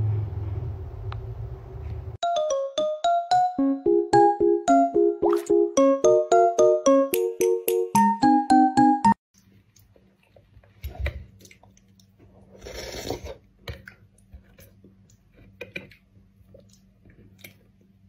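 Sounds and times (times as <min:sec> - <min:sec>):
plucked-note melody: 0:02.2 - 0:09.2.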